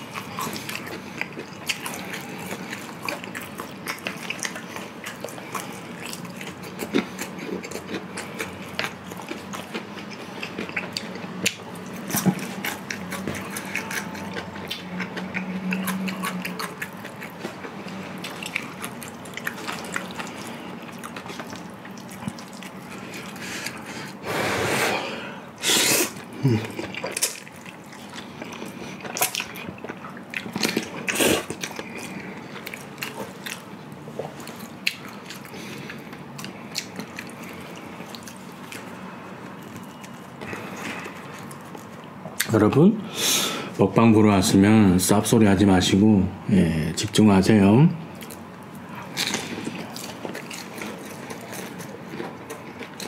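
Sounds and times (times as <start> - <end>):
wet chewing and mouth clicks: 0.0 - 24.2, 26.0 - 42.5, 48.2 - 53.0
loud noodle slurps: 24.2 - 26.2.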